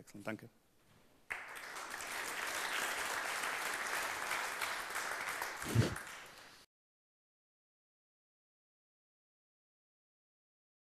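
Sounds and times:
audience applauding: 1.3s - 6.7s.

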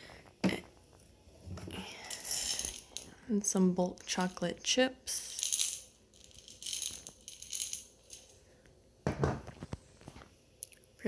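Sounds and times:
chocolate chips rattling in glass jar: 1.9s - 3.1s, 5.1s - 8.4s.

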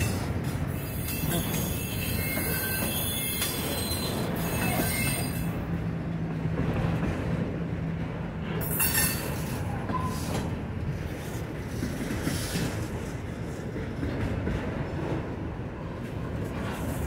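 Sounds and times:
wheel squeal: 0.0s - 5.6s
freight train rumbling past: 0.0s - 17.0s.

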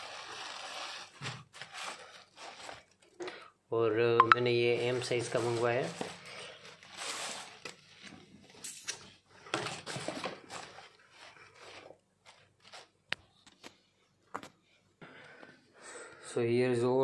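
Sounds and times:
packaging rustling and crinkling: 0.0s - 3.4s, 4.8s - 8.6s, 9.2s - 13.7s.

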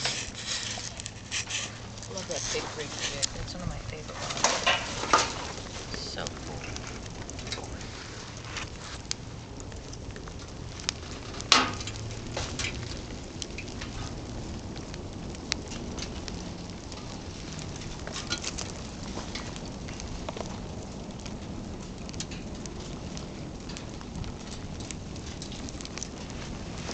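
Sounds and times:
fire crackling and popping: 0.0s - 26.9s.

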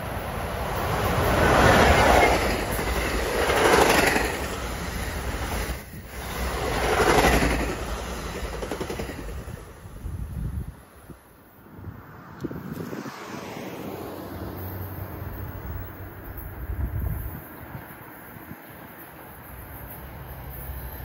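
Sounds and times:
train wheels clacking on rails: 0.6s - 9.8s.

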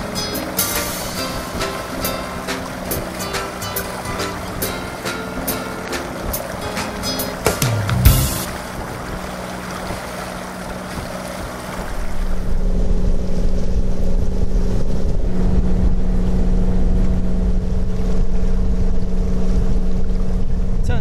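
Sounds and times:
diesel engine humming: 0.0s - 10.8s
wind rumbling on microphone: 8.3s - 21.0s.

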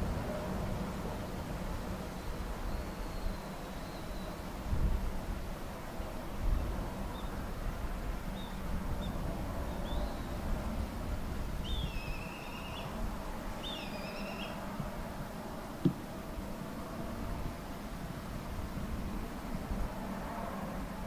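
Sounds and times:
bird chirping and calling: 11.6s - 13.0s, 13.6s - 14.6s.

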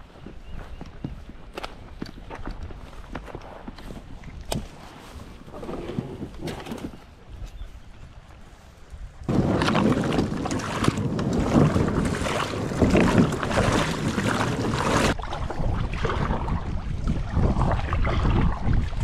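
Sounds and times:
wind buffeting microphone: 0.0s - 19.0s
water splashing: 9.3s - 19.0s.

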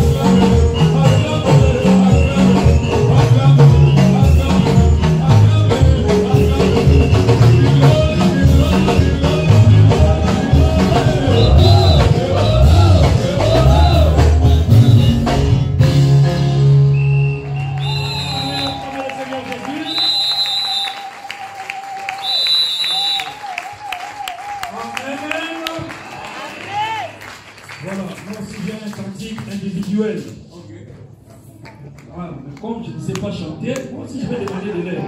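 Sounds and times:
group of singers: 0.0s - 15.4s
band with bass drums and keyboard: 0.0s - 19.0s.

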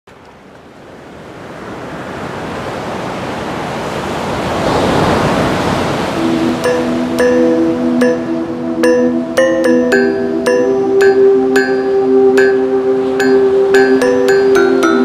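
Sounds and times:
rushing sea and wind: 0.1s - 15.0s
steady music tones: 6.2s - 15.0s.

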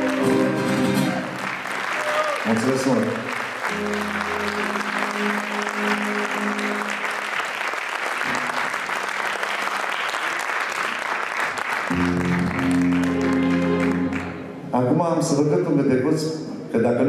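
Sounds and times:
audience applauding: 0.0s - 14.6s
acoustic guitar chord ringing: 3.7s - 7.1s.

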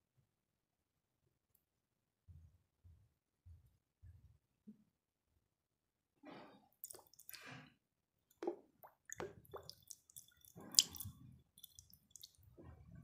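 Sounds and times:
dripping: 6.8s - 7.6s, 8.3s - 12.8s
wet chalk squishing: 6.8s - 7.6s, 8.4s - 12.6s.

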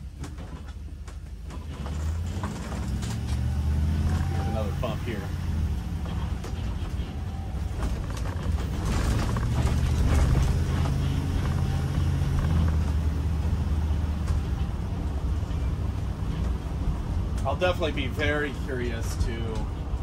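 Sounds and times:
engine humming: 0.0s - 20.0s
leaf springs creaking and squeaking: 1.5s - 16.8s.

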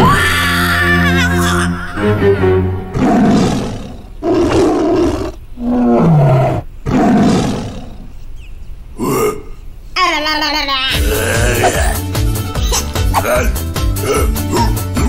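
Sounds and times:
rough roar-like growls: 2.9s - 8.1s.

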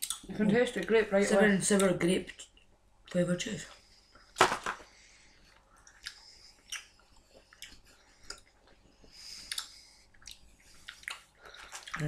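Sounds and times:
person chewing with wet smacks: 5.5s - 12.0s.

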